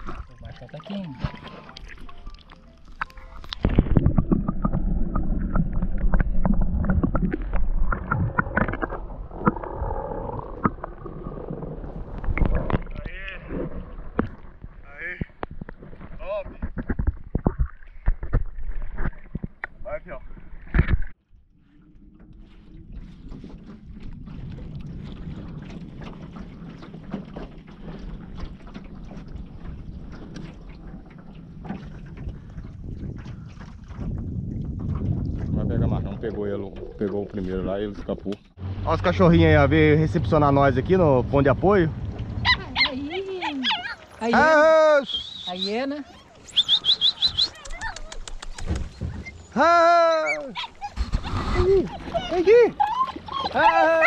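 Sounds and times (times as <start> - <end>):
muffled underwater rumbling and gurgling: 0.0 - 44.2, 50.3 - 54.0
water splashing against boat hull: 0.0 - 54.0
underwater knocks: 3.0 - 21.1, 22.1 - 38.5
wind buffeting microphone: 22.4 - 44.4, 50.4 - 54.0.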